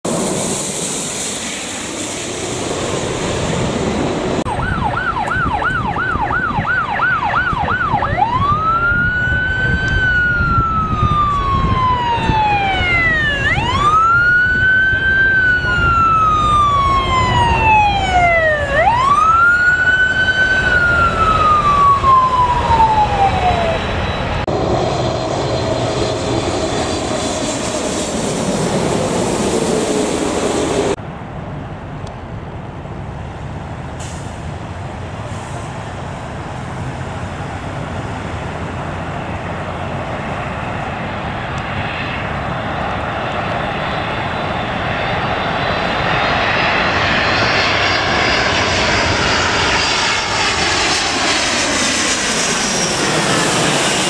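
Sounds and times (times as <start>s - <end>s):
engine and traffic rumble: 0.0s - 54.0s
ambulance siren yelp and wail: 4.4s - 24.5s.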